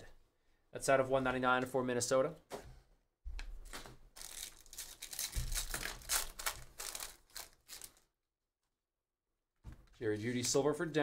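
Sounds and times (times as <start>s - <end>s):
foil wrappers crinkling: 3.7s - 8.0s.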